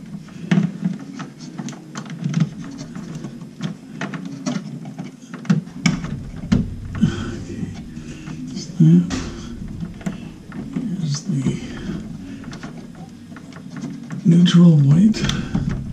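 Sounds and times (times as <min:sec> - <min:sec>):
low handling rumble: 0:00.0 - 0:00.6, 0:05.7 - 0:15.9.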